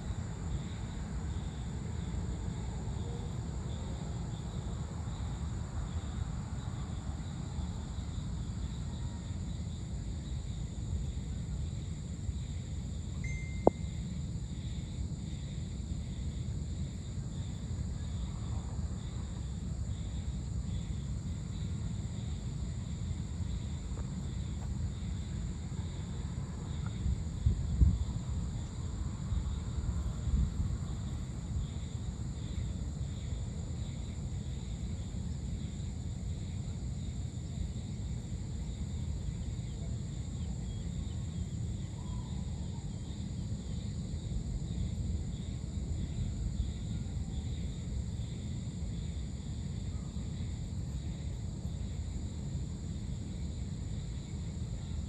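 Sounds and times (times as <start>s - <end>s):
high insect drone: 0.0s - 55.0s
short high tone: 13.2s - 13.8s.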